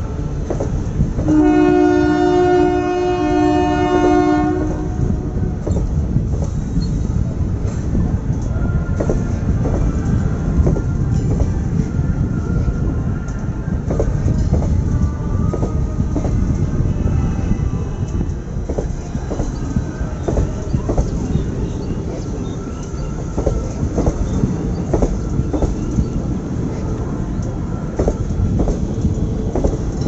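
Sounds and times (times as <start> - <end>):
train coaches rumbling past: 0.0 - 30.0
train horn: 1.2 - 5.6.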